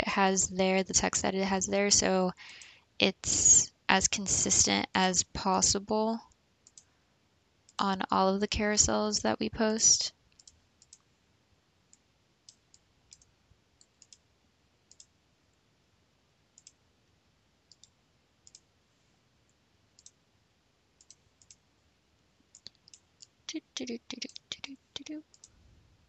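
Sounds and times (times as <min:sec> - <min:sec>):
computer mouse clicks: 0:06.3 - 0:06.9, 0:10.3 - 0:11.1, 0:11.9 - 0:14.3, 0:14.9 - 0:15.2, 0:16.6 - 0:16.8, 0:17.7 - 0:18.7, 0:20.0 - 0:20.2, 0:21.0 - 0:21.6, 0:22.5 - 0:23.4, 0:25.3 - 0:25.6.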